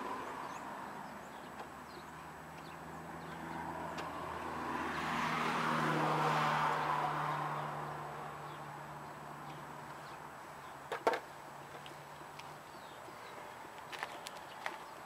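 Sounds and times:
car passing by: 2.6s - 10.2s.

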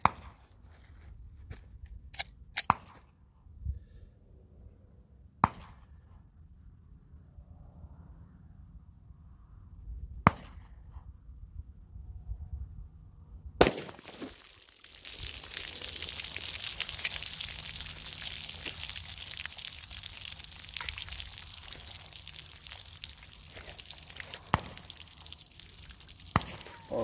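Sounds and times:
pistol shot: 13.6s - 14.2s
water pouring and splashing: 13.6s - 27.0s.

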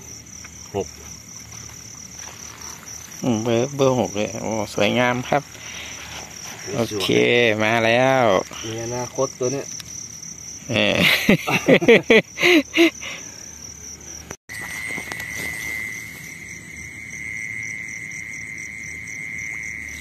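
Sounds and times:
insects trilling: 0.0s - 20.0s
person talking: 6.6s - 9.7s.

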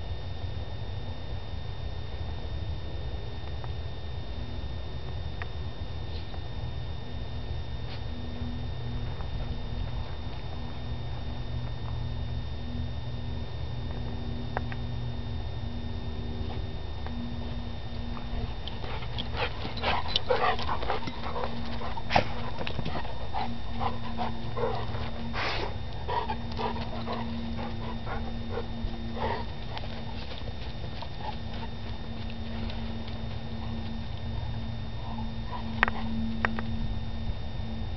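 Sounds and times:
steady low hum: 0.0s - 37.9s
dogs sniffing: 18.3s - 34.0s.

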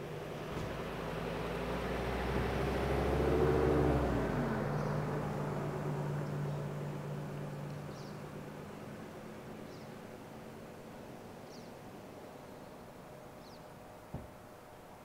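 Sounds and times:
vehicle driving past: 0.0s - 10.8s.

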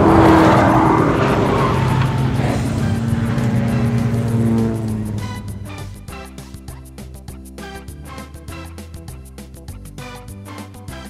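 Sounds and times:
car engine racing past: 0.0s - 6.2s
background music: 0.0s - 11.0s.

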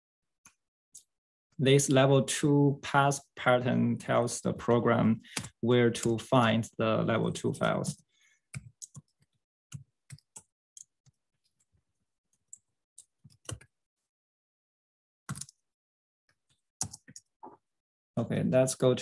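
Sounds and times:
keystrokes on computer keyboard: 8.5s - 11.7s, 12.4s - 13.7s, 15.3s - 15.6s, 16.5s - 17.6s.

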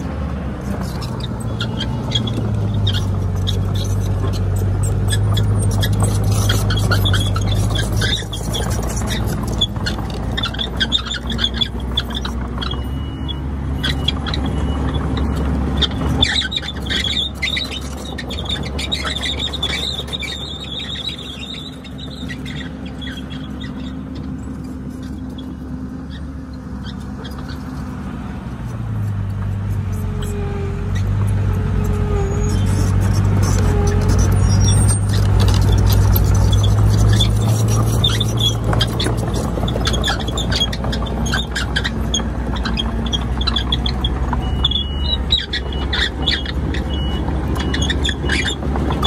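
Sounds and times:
bulldozer diesel engine running: 0.0s - 49.0s
high squeal: 0.6s - 27.9s, 29.7s - 49.0s.

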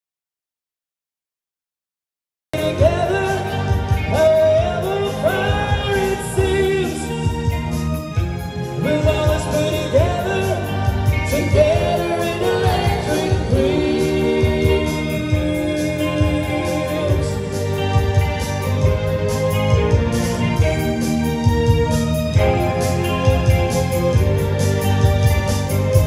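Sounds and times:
keyboard: 2.5s - 26.0s
person singing: 2.6s - 8.0s, 8.6s - 26.0s
bass guitar: 2.6s - 26.0s
electric guitars: 2.6s - 26.0s.

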